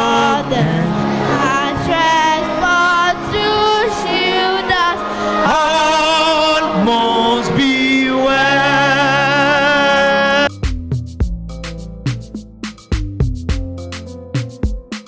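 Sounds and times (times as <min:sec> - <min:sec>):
children singing: 0:00.0 - 0:10.3
music with sharp drum beats: 0:10.4 - 0:15.0.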